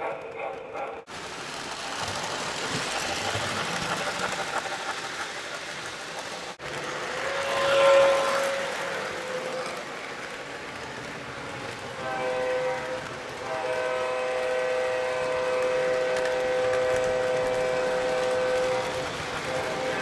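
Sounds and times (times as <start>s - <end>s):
model train rolling on track: 0.0s - 20.0s
electronic train horn: 7.1s - 9.8s, 12.0s - 20.0s.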